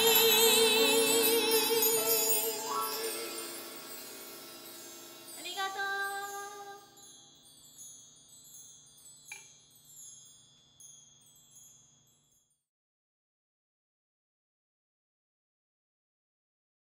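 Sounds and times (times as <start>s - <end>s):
bar chimes tinkling: 0.0s - 12.6s.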